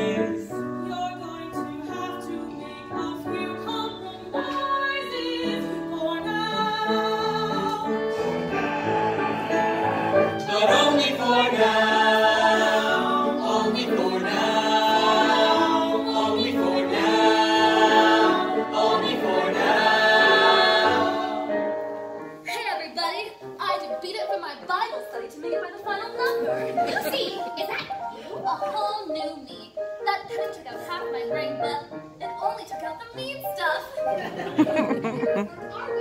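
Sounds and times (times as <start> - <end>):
man and woman singing: 0.0 - 21.8
choir singing: 0.0 - 22.2
instrumental accompaniment: 0.0 - 22.5.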